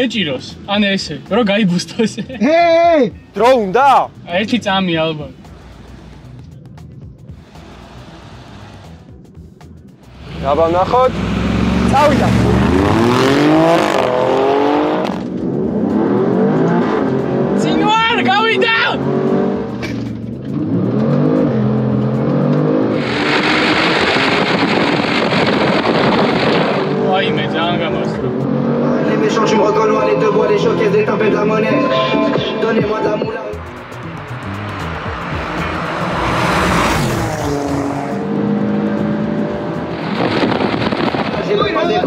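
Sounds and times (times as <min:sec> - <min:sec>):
car engine revving: 0:03.3 - 0:09.2, 0:10.0 - 0:42.0
wind noise on microphone: 0:22.9 - 0:27.1, 0:39.1 - 0:42.0.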